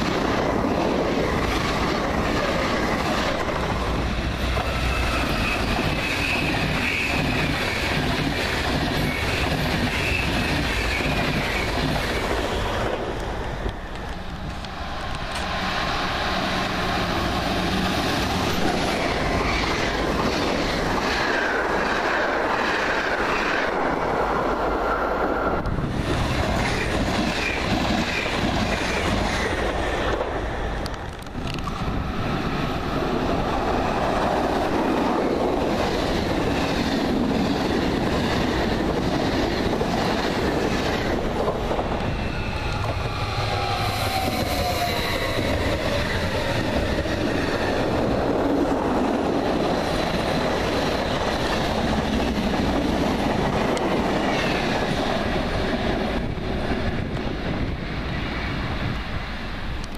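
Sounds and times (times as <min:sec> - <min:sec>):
train wheels on rails: 0:00.0 - 0:59.9
faint high wheel squeal: 0:04.8 - 0:08.0.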